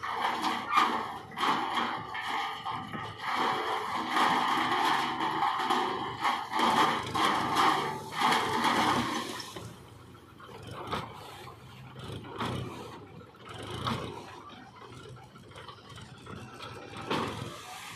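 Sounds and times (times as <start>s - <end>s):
tractor engine running: 0.0s - 17.9s
soil sliding and pouring: 1.4s - 9.8s.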